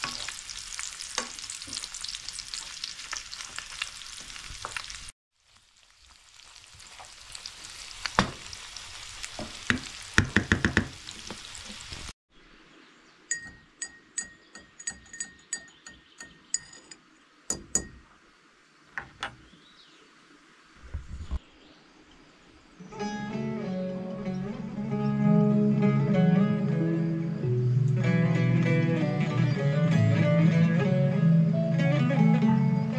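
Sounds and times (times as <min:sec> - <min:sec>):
food sizzling in a pan: 0:00.0 - 0:12.2
knocks: 0:09.7 - 0:11.0
light ringing clinks: 0:13.3 - 0:18.0.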